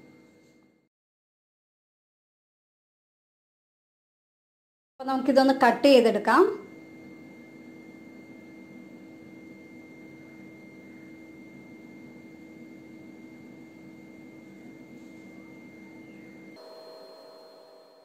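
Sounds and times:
background hum: 5.0 - 18.0
faint high whine: 5.0 - 18.0.

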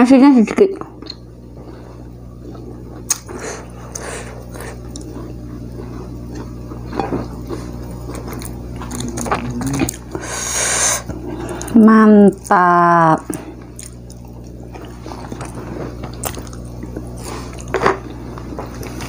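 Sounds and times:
steady low hum: 0.0 - 19.0
close wet chewing: 2.4 - 10.2, 13.3 - 17.7.

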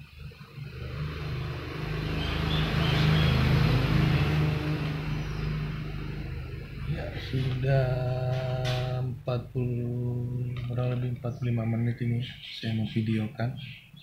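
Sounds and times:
motor vehicle passing by: 0.0 - 10.5.

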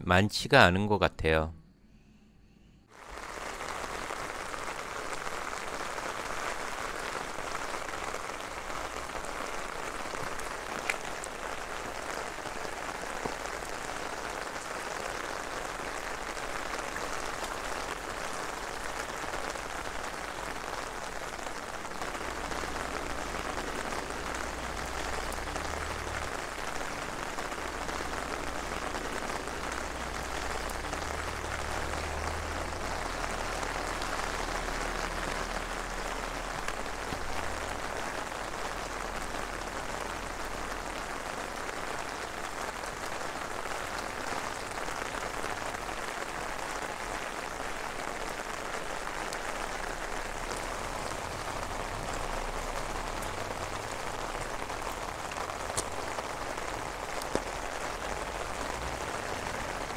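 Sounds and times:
rain on wet pavement: 2.9 - 59.9.

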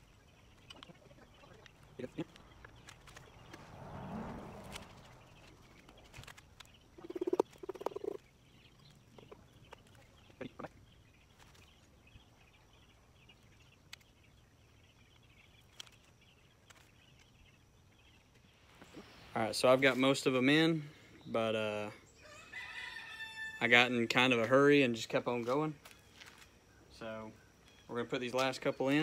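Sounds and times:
faint frogs calling: 5.1 - 11.3.

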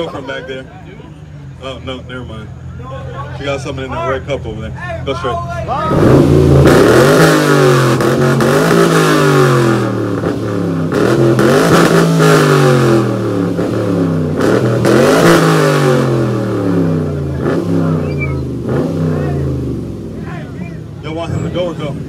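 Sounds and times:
car engine revving: 5.7 - 22.0.

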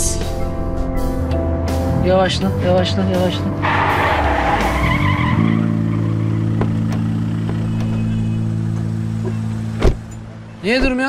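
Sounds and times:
low background music: 0.0 - 11.0
car tyres screeching: 3.3 - 10.7.

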